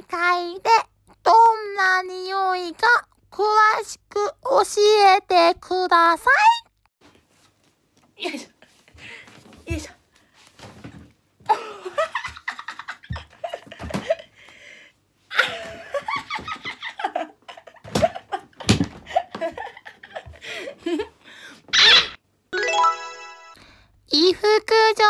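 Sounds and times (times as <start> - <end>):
young woman laughing: 11.5 - 14.3, 15.3 - 21.2.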